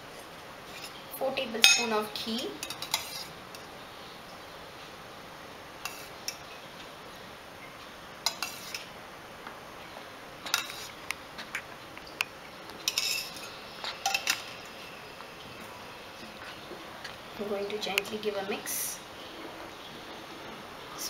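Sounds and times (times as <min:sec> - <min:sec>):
spoon clinking against jar and pan: 0:01.6 - 0:01.9.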